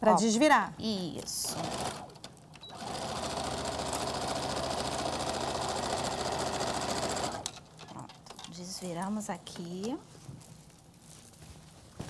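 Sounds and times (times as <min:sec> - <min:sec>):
sewing machine stitching: 0:01.4 - 0:07.6.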